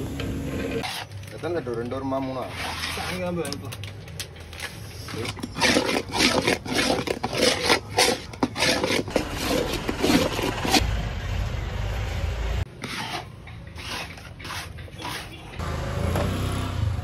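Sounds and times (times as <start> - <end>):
metal spatula scraping pan: 5.1 - 10.8, 12.7 - 15.6.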